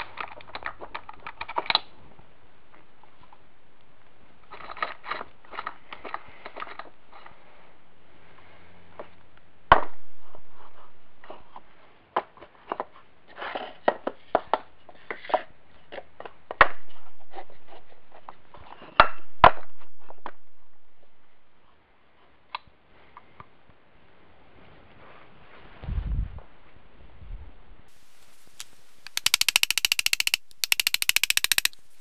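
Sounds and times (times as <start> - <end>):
metal gears clinking and knocking: 29.2 - 31.8.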